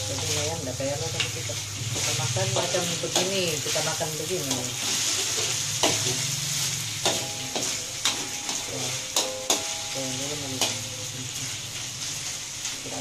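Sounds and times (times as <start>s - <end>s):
spatula clanking on wok: 0.0s - 11.9s
chicken sizzling in oil: 0.0s - 13.0s.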